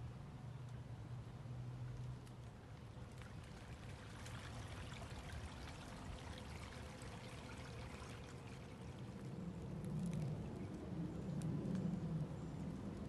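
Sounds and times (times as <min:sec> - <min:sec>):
stream trickling: 0:02.4 - 0:10.6.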